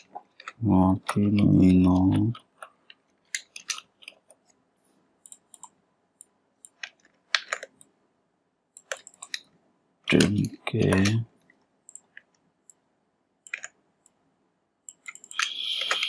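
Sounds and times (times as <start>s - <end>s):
mouse clicks: 5.2s - 7.9s, 8.8s - 9.5s, 11.9s - 12.8s, 14.9s - 16.0s
keyboard typing: 5.3s - 5.8s, 8.8s - 9.4s, 10.1s - 11.2s, 11.9s - 12.8s, 13.4s - 13.8s, 14.9s - 16.0s.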